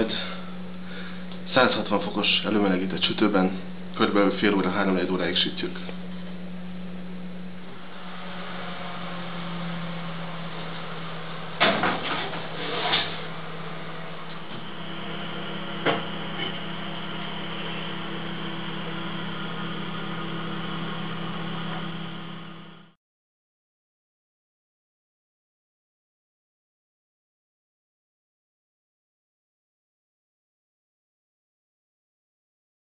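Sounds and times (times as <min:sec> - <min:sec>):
oven motor hum: 0:00.0 - 0:23.0.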